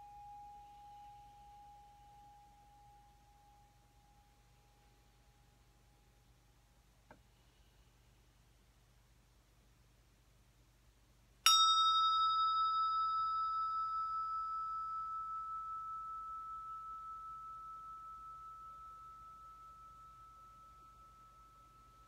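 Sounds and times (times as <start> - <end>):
hand bell ringing: 11.5 - 22.0.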